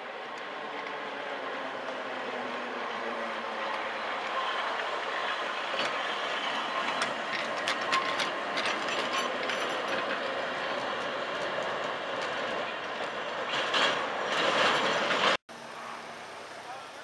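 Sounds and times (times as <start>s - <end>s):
tram wheels rumbling on rails: 0.0s - 17.0s
sharp clicks and clacks of wheels: 0.2s - 15.4s.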